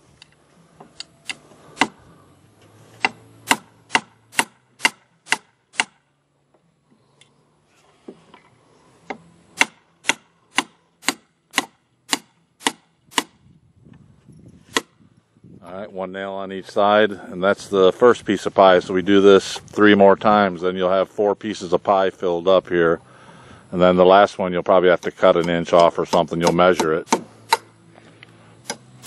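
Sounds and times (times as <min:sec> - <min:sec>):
hammer driving nails into wood: 0:01.3 - 0:02.0, 0:03.0 - 0:06.0, 0:09.6 - 0:13.4, 0:25.0 - 0:27.7.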